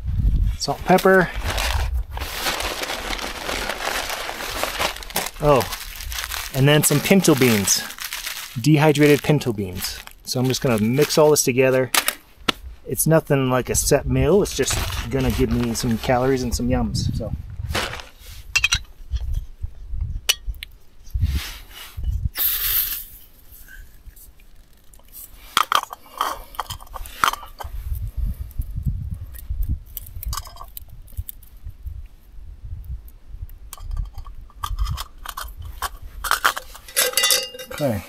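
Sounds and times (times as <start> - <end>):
brief gas hiss: 21.3 - 23.8
metal cook pots handled: 33.8 - 38.0.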